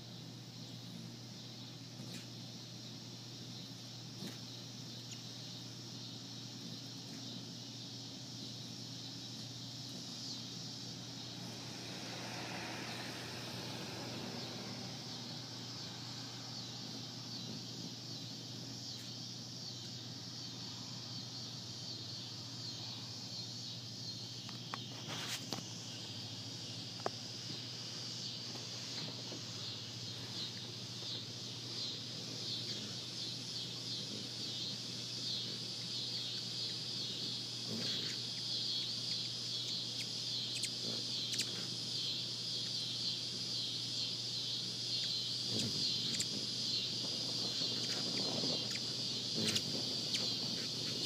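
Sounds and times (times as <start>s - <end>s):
insects buzzing: 0.0s - 51.0s
low hum: 9.9s - 18.7s
wash of low noise: 10.5s - 17.6s.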